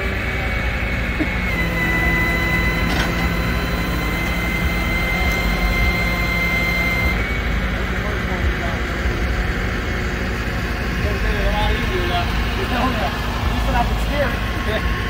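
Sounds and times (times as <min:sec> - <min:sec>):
constant high whine: 0:00.0 - 0:15.0
truck engine rumbling: 0:00.0 - 0:15.0.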